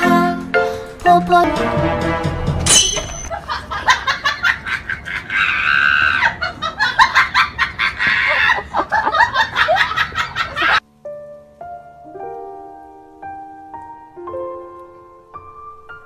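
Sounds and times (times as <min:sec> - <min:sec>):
soft piano notes: 0:10.8 - 0:16.0.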